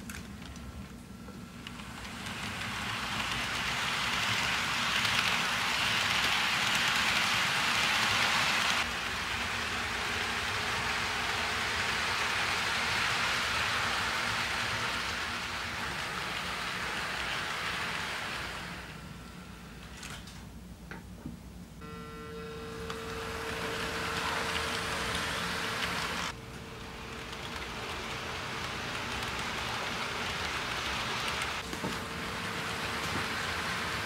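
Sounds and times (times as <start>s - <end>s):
model train wheels rattling on track: 1.7s - 9.4s, 23.6s - 31.6s
locomotive motors: 21.8s - 34.0s.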